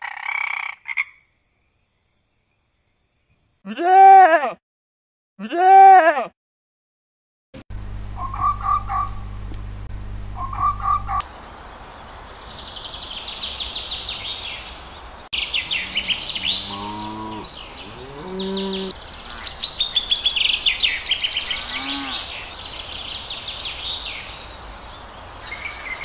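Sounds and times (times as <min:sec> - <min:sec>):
birdsong chirping: 0:08.1 - 0:09.4, 0:10.2 - 0:26.0
cows mooing: 0:15.6 - 0:19.0, 0:21.6 - 0:22.3.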